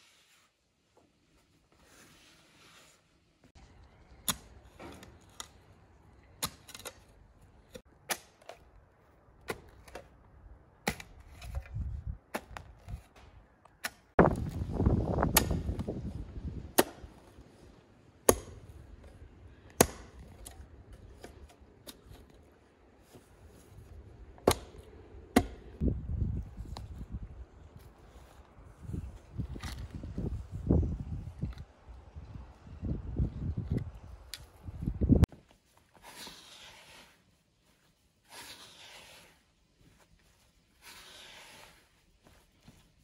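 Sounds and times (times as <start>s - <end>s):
rough scraping noise: 36.0s - 37.3s, 38.2s - 39.5s, 40.8s - 42.0s.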